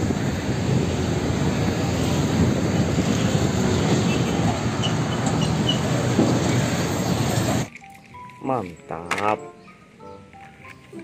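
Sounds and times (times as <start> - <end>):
heavy truck driving by: 0.0 - 7.7.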